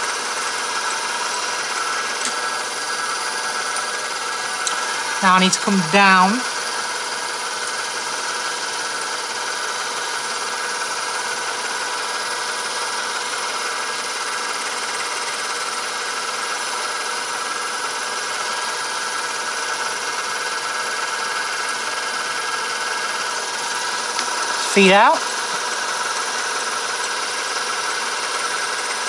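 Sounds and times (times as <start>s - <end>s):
lathe motor whine: 0.0s - 5.2s.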